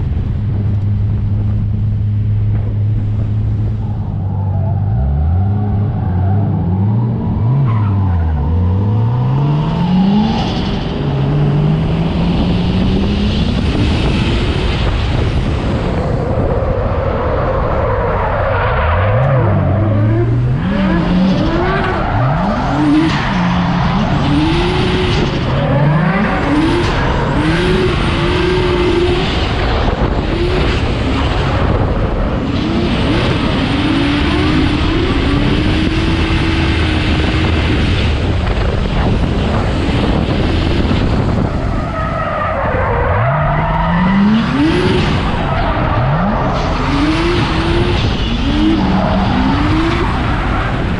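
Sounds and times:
car engine revving hard: 19.1 - 41.7, 42.9 - 50.9.

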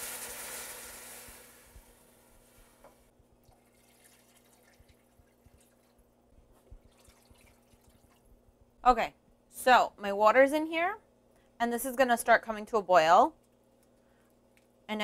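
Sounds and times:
vegetables sizzling: 0.0 - 2.8
water trickling into pot: 3.4 - 6.0, 6.8 - 8.2.

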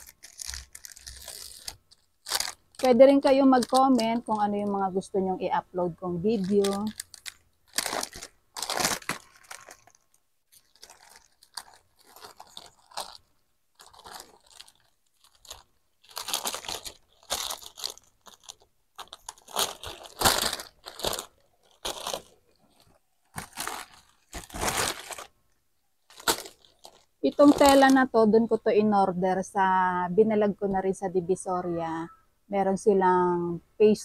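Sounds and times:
plastic wrapping crinkling and tearing: 0.0 - 4.4, 6.3 - 25.3, 26.0 - 28.1.

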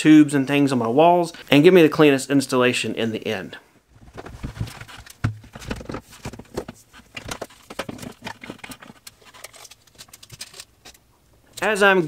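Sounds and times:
dull thumps: 3.9 - 8.6.

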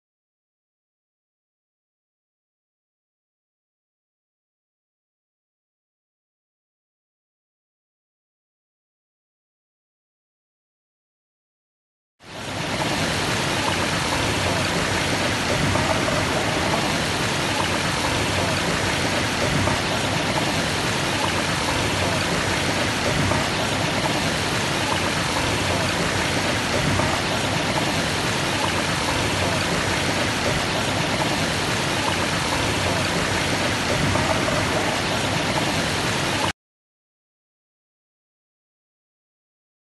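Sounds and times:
water pouring over spillway: 12.3 - 36.5.

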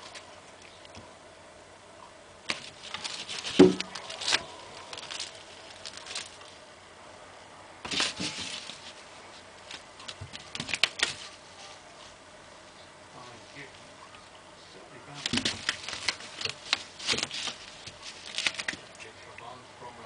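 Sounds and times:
foam rustling under clawing: 2.5 - 6.6, 7.8 - 12.2, 15.1 - 19.0.

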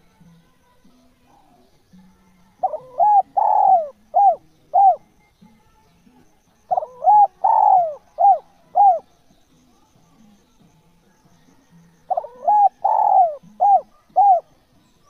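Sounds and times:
dove cooing: 2.6 - 5.1, 6.6 - 9.1, 11.9 - 14.6.

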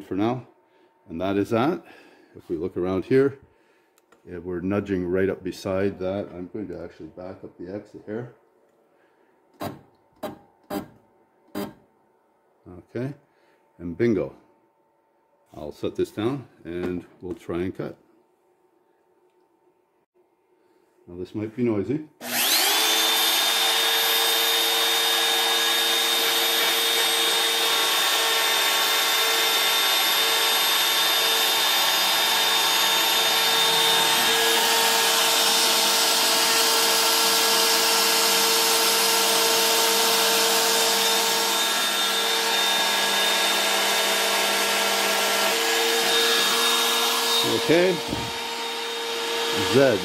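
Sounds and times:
router bit milling plastic: 22.2 - 50.0
router spindle motor whining: 22.2 - 50.0.

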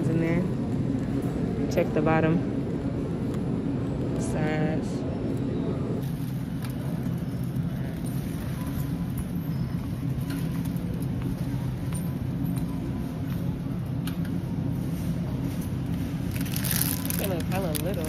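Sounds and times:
shopping cart rolling: 6.0 - 13.5, 14.9 - 18.0.

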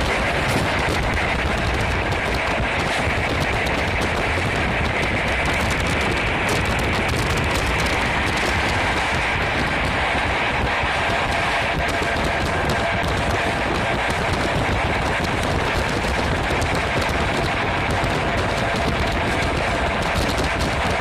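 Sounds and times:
train rumble and hiss: 0.0 - 21.0
wheels clicking over rail joints: 0.0 - 21.0.

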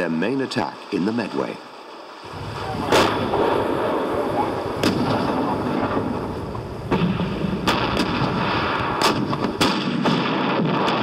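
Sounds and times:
cannon shots: 2.6 - 11.0.

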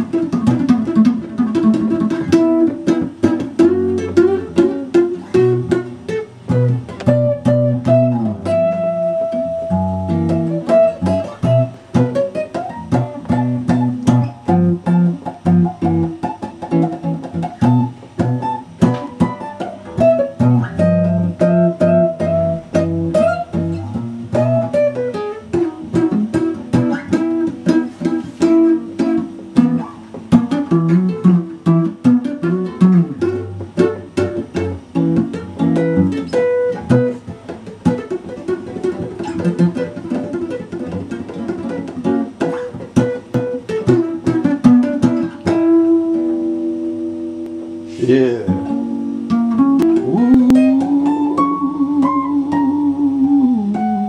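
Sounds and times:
solo guitar playing: 0.0 - 54.0.

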